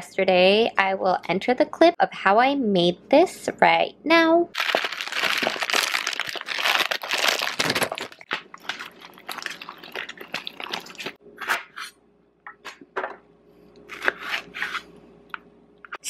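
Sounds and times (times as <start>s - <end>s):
plastic bag crinkling: 4.6s - 11.2s
sprouts rustling in rinse water: 7.9s - 11.2s.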